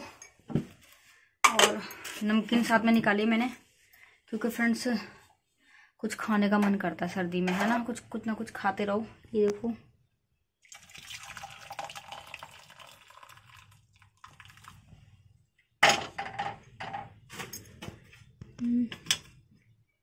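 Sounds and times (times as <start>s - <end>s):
tea pouring into steel tumbler: 10.6s - 15.0s.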